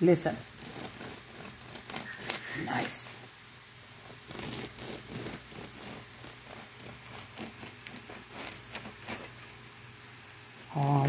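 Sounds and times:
bread knife sawing crust: 0.3s - 3.3s, 3.9s - 9.6s.

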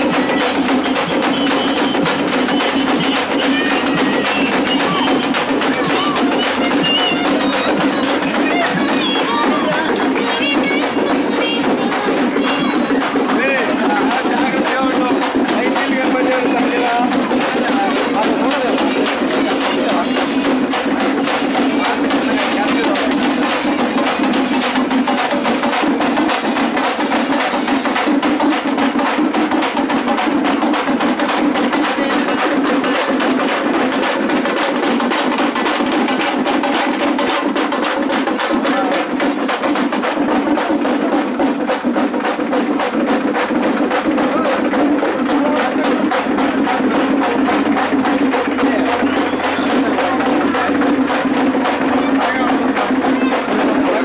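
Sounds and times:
hand drums fast rhythm: 0.0s - 54.0s.

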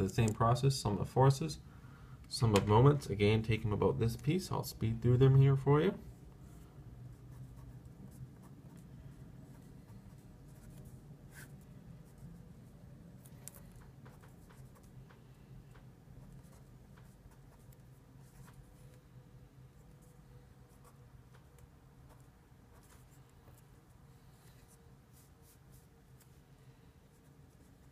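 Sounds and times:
low steady hum: 0.0s - 27.9s
marker scratching on paper: 7.1s - 12.6s, 13.4s - 15.0s, 19.8s - 23.6s.

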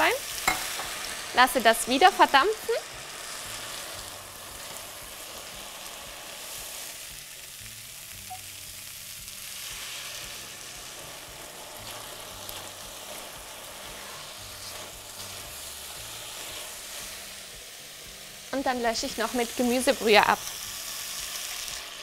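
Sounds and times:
vegetables sizzling in a pot: 0.0s - 22.0s
spatula stirring: 10.8s - 17.3s.

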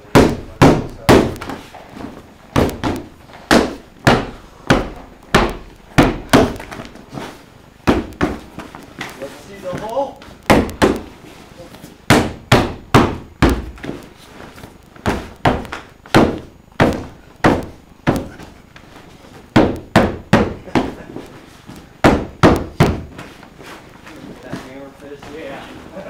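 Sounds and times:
punches thudding on grappling bag: 0.1s - 7.0s, 7.8s - 8.6s, 12.1s - 14.0s, 15.0s - 18.6s, 19.5s - 21.0s, 22.0s - 23.2s.

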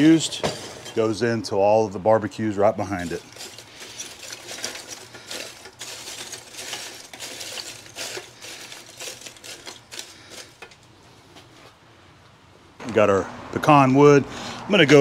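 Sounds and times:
charcoal pieces clattering: 2.6s - 10.9s.

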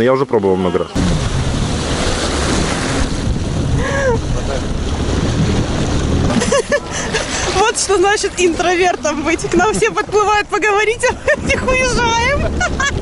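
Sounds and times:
jet ski engine drone: 0.0s - 13.0s
wind buffeting microphone: 0.8s - 13.0s
rush of spray: 1.0s - 5.6s.

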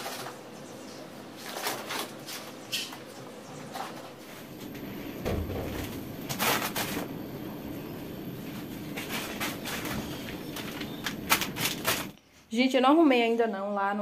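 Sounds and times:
background hum: 0.0s - 14.0s
plastic packages rustling: 8.6s - 12.2s.

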